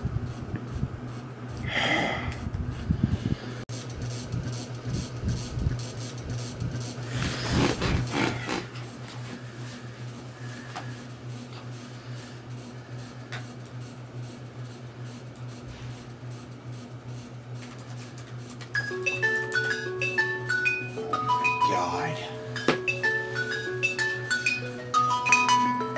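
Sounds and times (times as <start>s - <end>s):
low electrical hum: 0.0s - 25.9s
fabric rustling: 7.1s - 9.4s.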